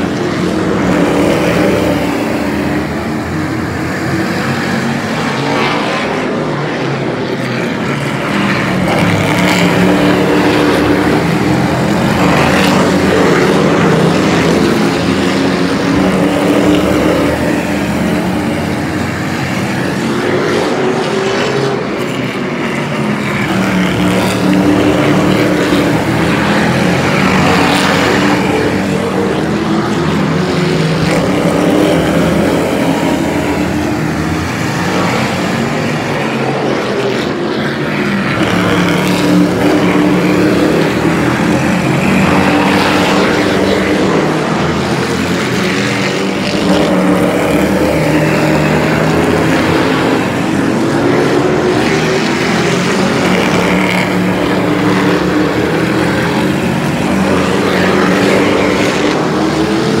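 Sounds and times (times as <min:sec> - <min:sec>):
racing truck engines: 0:00.0 - 1:00.0.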